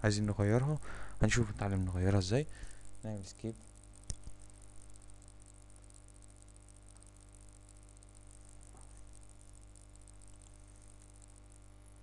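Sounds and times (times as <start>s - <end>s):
faint electrical hum and hiss: 0.0s - 12.0s
faint ticks: 3.4s - 12.0s
sharp click: 4.0s - 4.5s.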